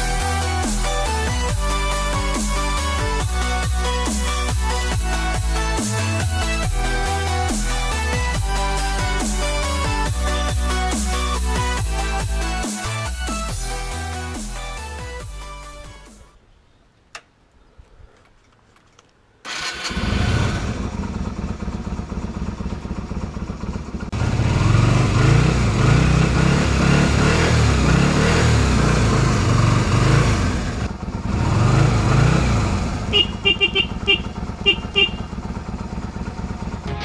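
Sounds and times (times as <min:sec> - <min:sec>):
motorcycle engine starting and revving: 0:19.4 - 0:37.0.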